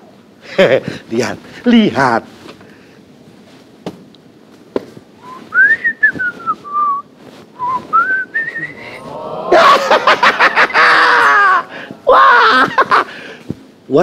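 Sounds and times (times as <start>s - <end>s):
man whistling a tune: 5.2s - 9.0s.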